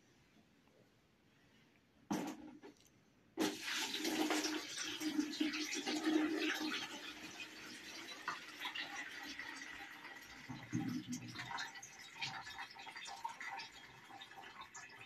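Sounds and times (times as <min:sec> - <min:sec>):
milk pouring into plastic bucket: 0:03.4 - 0:15.0.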